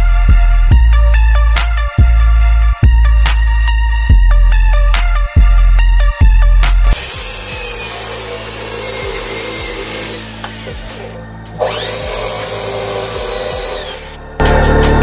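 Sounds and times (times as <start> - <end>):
electric drill boring into wood: 6.9 - 14.2.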